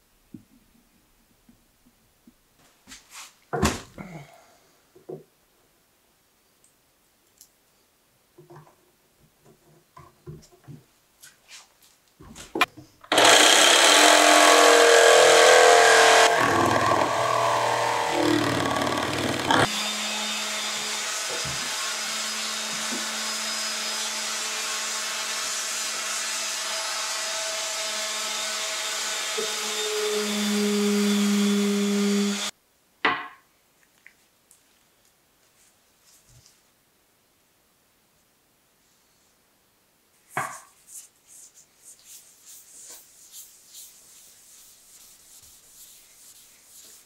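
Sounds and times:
orbital sander sanding wood: 13.1s - 32.5s, 42.1s - 47.0s
power tool on wood: 13.1s - 32.5s.

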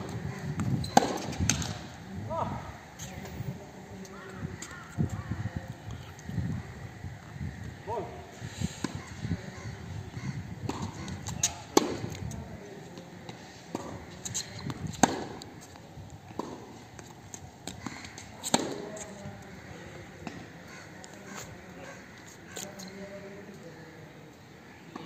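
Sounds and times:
tennis ball bouncing: 0.0s - 1.8s, 10.7s - 12.1s, 13.7s - 15.5s, 16.4s - 19.0s
tennis ball hit by racquets: 0.0s - 1.8s, 10.6s - 12.2s, 13.7s - 15.5s, 17.6s - 19.1s.

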